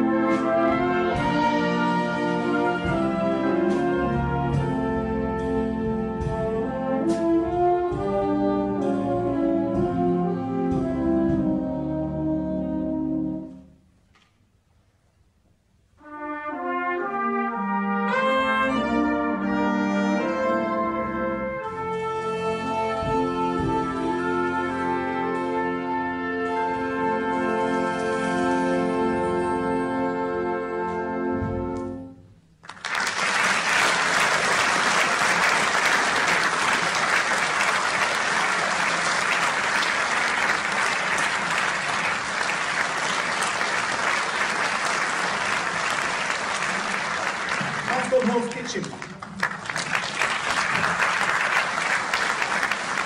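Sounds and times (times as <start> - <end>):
concert band playing: 0.0 - 13.6, 16.5 - 32.1, 33.0 - 48.6
audience applause: 32.6 - 53.0.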